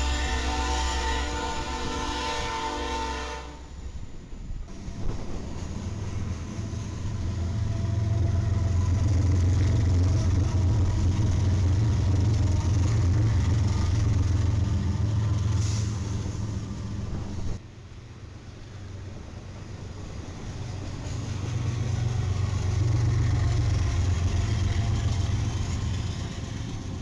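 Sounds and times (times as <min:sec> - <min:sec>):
diesel locomotives passing: 0:00.0 - 0:27.0.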